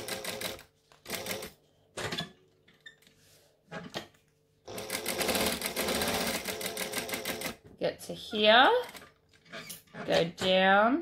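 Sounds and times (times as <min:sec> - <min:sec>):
sewing machine stitching: 0:04.7 - 0:07.6.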